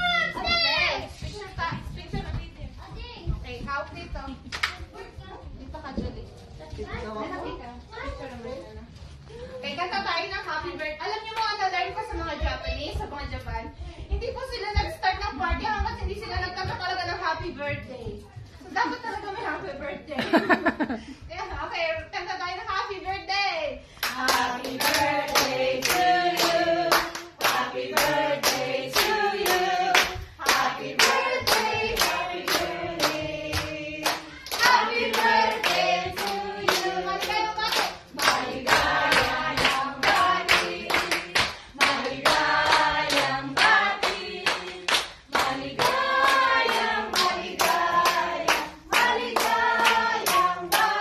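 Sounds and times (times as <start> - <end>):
group of people singing: 24.0 - 51.0.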